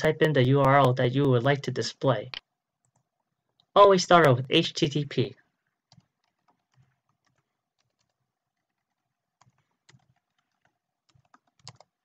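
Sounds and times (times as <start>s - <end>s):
keyboard typing clicks: 5.9s - 12.0s.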